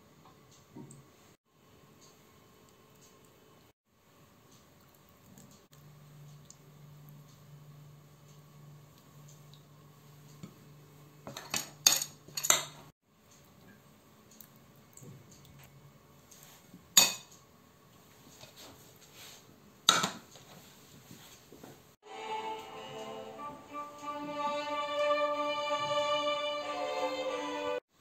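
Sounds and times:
spoon clinking against plates: 11.3s - 12.8s, 17.0s - 17.4s
music: 22.0s - 27.8s.

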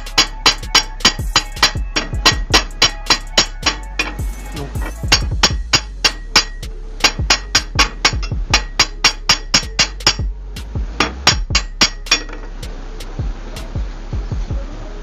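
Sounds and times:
hammer striking metal: 0.0s - 10.3s, 11.0s - 12.6s.

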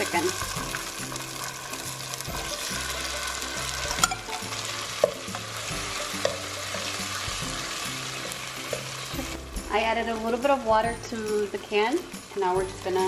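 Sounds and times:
butter and garlic sizzling: 0.0s - 13.0s
spatula tapping pan: 5.0s - 7.0s, 8.1s - 9.2s.

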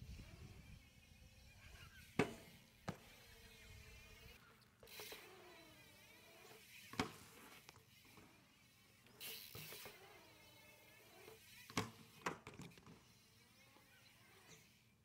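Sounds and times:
bike wheels landing on concrete: 1.8s - 13.1s.

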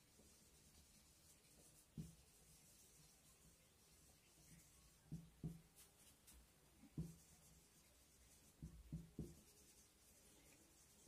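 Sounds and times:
marker writing on whiteboard: 0.1s - 11.0s
soft knocks on whiteboard: 1.9s - 2.2s, 5.0s - 5.8s, 6.8s - 7.4s, 8.6s - 9.5s.

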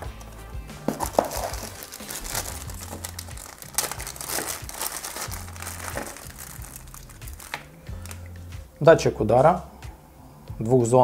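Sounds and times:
background music: 0.0s - 11.0s
plastic bags crinkling: 0.9s - 8.2s.

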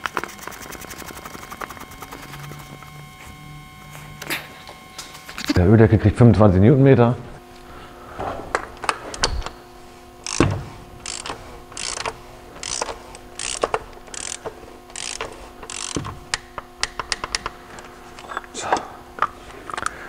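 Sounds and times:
torque wrench ratcheting: 10.2s - 17.5s.

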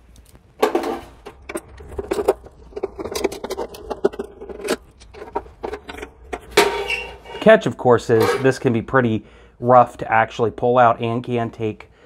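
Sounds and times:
handling clatter: 0.2s - 8.8s
screwdriver metallic clicks and scrapes: 2.7s - 7.5s.

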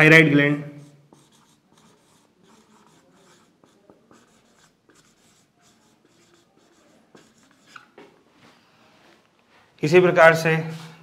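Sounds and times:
marker pen scratching on whiteboard: 0.6s - 8.2s.

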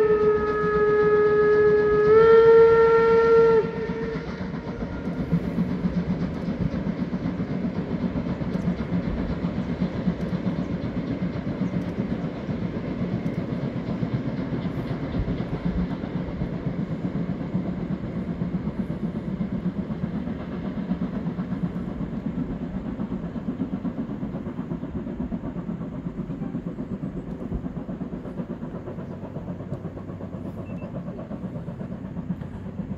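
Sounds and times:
steam locomotive chuffing: 0.0s - 32.9s.

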